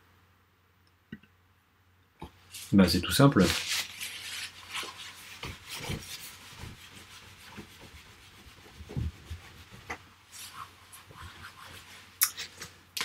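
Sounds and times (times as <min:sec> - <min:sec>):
scrubbing on a whiteboard: 0:02.5 - 0:12.8.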